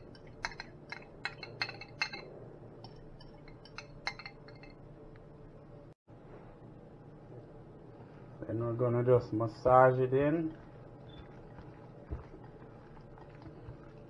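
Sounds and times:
metal fork clinking on ceramic bowl: 0:00.0 - 0:04.8.

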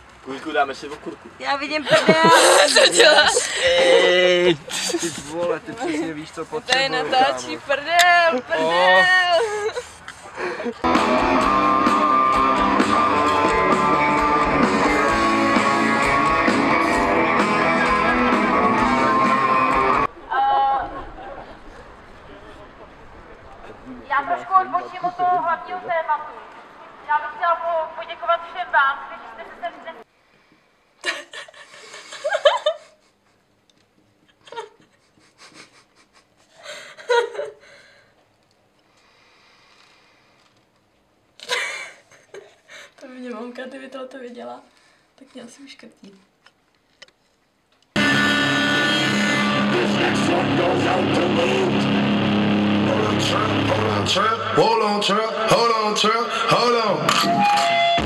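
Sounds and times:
person laughing: 0:01.8 - 0:06.1, 0:08.3 - 0:10.9, 0:31.0 - 0:33.2, 0:34.2 - 0:37.8, 0:41.4 - 0:42.8
rock music with guitar: 0:10.9 - 0:20.1, 0:48.0 - 0:54.7, 0:56.3 - 0:58.0.

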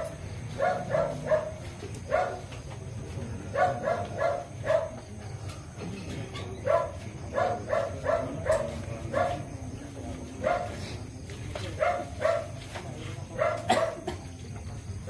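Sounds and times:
dog barking: 0:00.0 - 0:02.6, 0:03.5 - 0:05.1, 0:06.4 - 0:09.5, 0:10.4 - 0:10.8, 0:11.8 - 0:12.6, 0:13.3 - 0:14.1.

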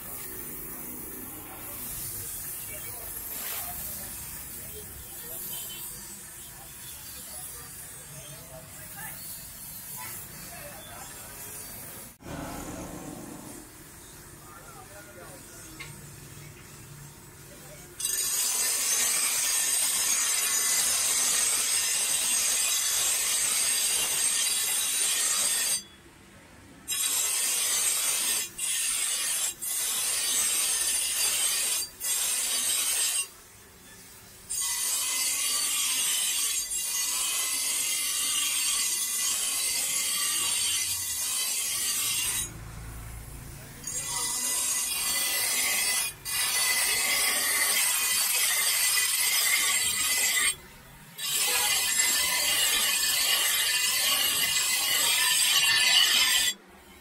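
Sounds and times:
grinder motor hum: 0:12.2 - 0:13.8
blade grinding on grinder wheel: 0:34.5 - 0:50.6, 0:51.2 - 0:56.6.

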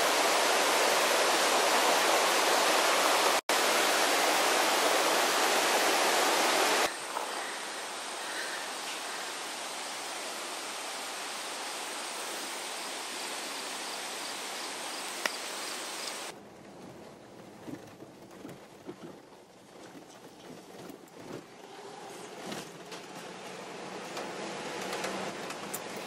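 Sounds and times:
flowing water rushing: 0:00.0 - 0:16.3.

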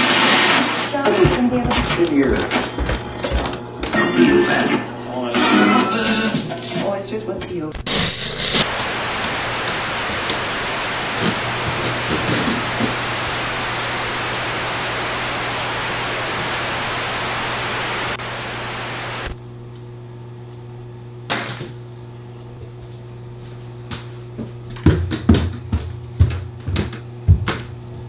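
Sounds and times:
television static hiss: 0:07.8 - 0:19.4
low steady hum: 0:08.6 - 0:21.2.

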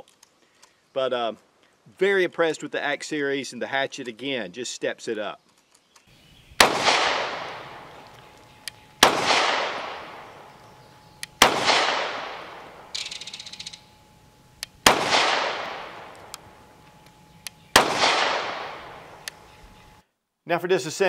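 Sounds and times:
pistol shots echoing: 0:06.6 - 0:13.7, 0:14.7 - 0:16.8, 0:17.5 - 0:19.4.

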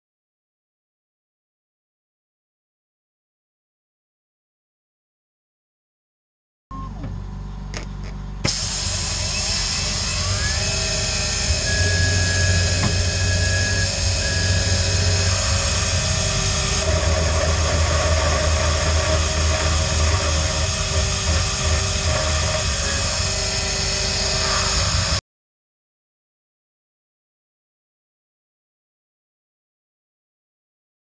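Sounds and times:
milling machine whine and cutting: 0:08.4 - 0:25.2.

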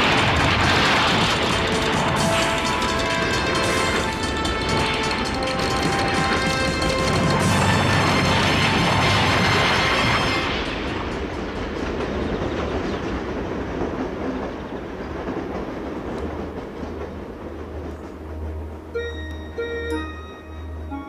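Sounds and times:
rushing and rumbling noise: 0:00.0 - 0:19.0
soft chime-like music: 0:18.9 - 0:21.0.

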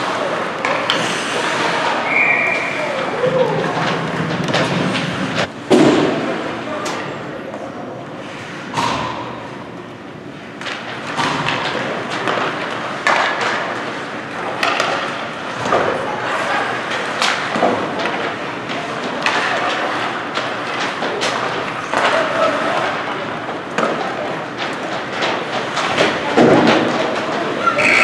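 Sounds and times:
skates scraping ice: 0:00.0 - 0:05.5, 0:12.1 - 0:23.1, 0:24.7 - 0:28.0
hockey sticks and puck knocking boards: 0:00.0 - 0:06.4, 0:10.6 - 0:28.0.

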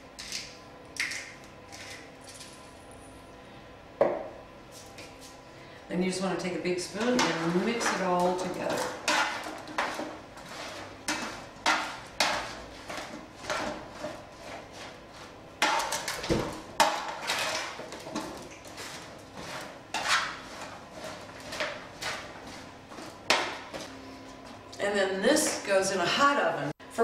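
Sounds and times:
spoon scraping a roasting pan: 0:06.9 - 0:16.2, 0:16.8 - 0:23.6.

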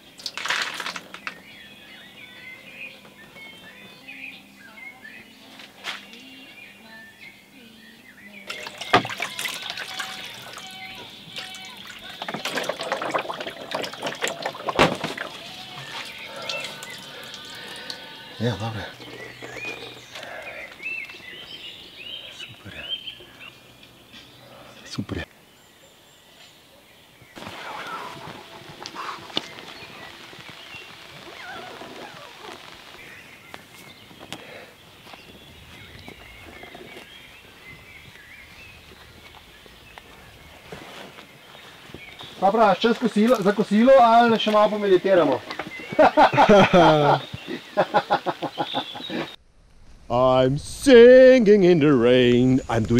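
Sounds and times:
birds chirping: 0:00.0 - 0:49.4
water splashing in a tray: 0:08.5 - 0:18.0.

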